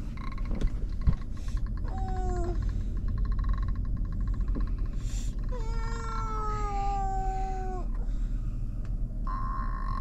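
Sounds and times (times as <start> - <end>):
child whining: 1.8 - 2.6, 5.5 - 8.0, 9.3 - 10.0.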